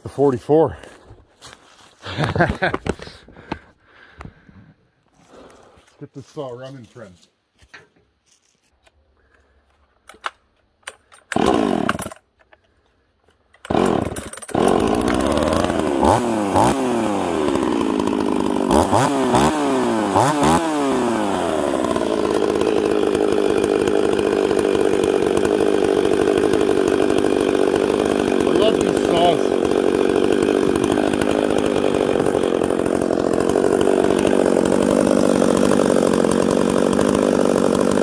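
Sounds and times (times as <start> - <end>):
chainsaw starting and revving: 10.9 - 12.8, 13.6 - 38.0.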